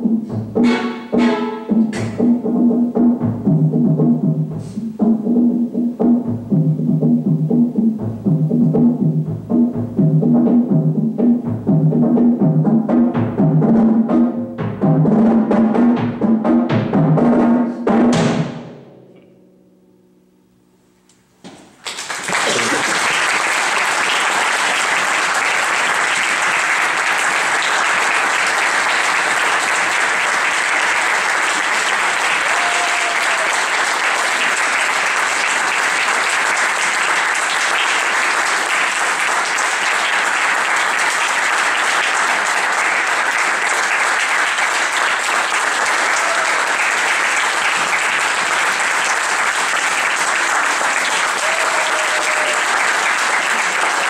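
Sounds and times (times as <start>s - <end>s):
music: 0.0s - 21.3s
audience applause: 21.8s - 54.0s.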